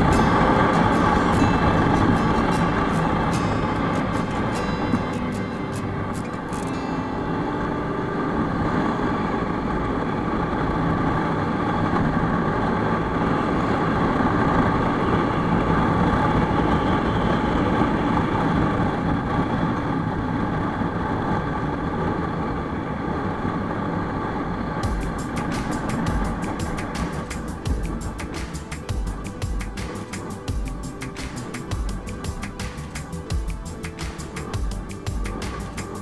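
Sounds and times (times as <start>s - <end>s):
motorcycle engine running: 0.0s - 6.8s, 24.8s - 36.0s
road and wind noise: 0.0s - 36.0s.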